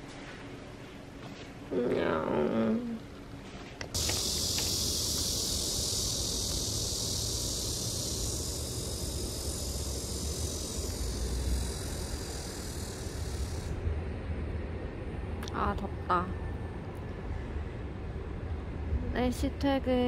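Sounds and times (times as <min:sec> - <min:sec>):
cicadas buzzing: 0:03.9 - 0:13.9.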